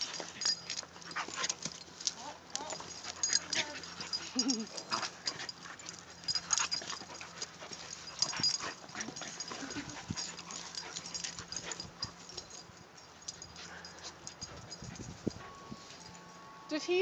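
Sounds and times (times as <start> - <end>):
dogs scuffling and mouthing: 0.0 - 16.4.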